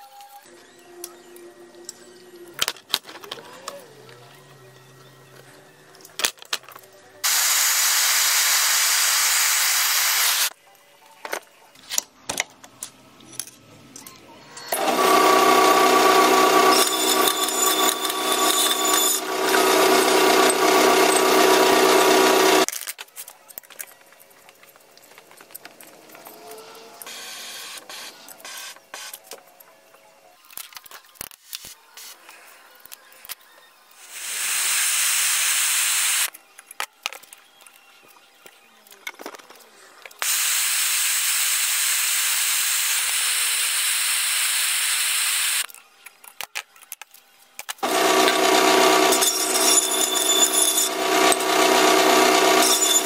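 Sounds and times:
hissing noise: 7.2 - 10.5, 34.0 - 36.3
metal-cutting bandsaw cutting steel: 14.6 - 22.7, 47.8 - 53.0.

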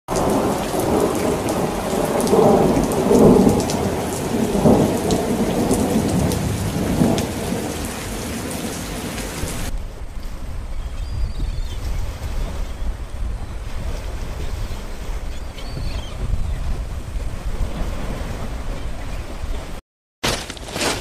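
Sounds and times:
heavy rain: 0.1 - 10.8
rolling thunder: 0.1 - 11.6.

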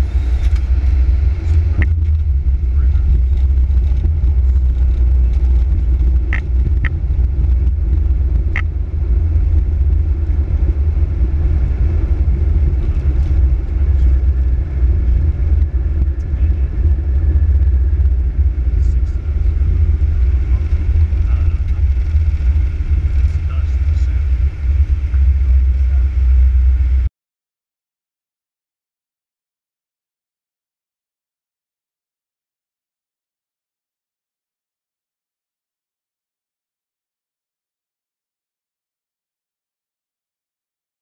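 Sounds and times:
airplane rolling low rumble: 0.0 - 27.1.

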